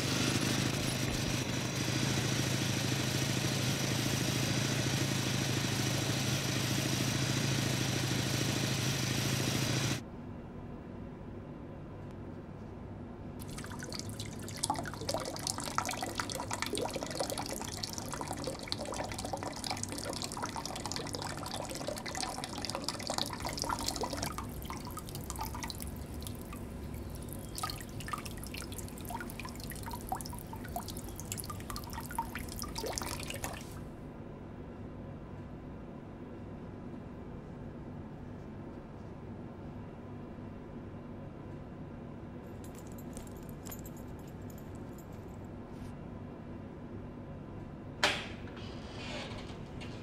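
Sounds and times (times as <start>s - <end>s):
water dripping and splashing: 13.4s - 33.8s.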